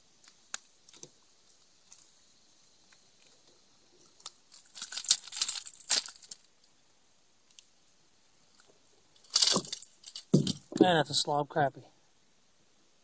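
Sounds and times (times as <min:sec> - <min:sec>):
crinkling scraping rustle: 0:03.2 - 0:06.5, 0:08.5 - 0:10.9.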